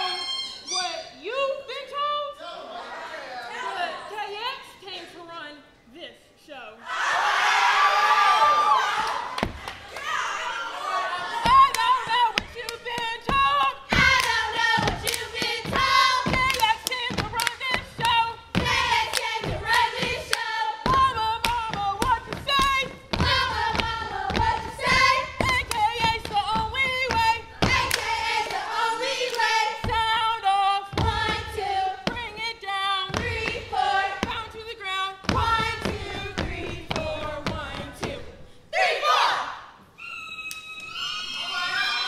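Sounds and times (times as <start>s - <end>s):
women singing in unison: 10.4s - 39.6s
hand claps: 14.1s - 20.5s.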